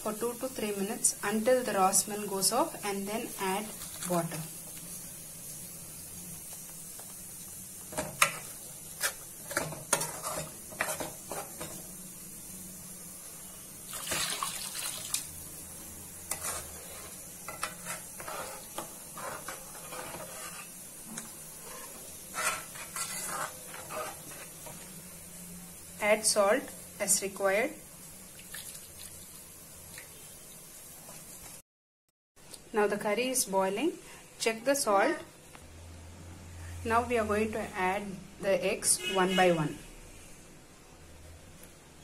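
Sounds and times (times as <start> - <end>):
metal ladle scraping metal pan: 8.2 - 11.8, 16.3 - 20.8, 21.6 - 24.8
water pouring into pan: 13.9 - 15.4, 28.2 - 30.4.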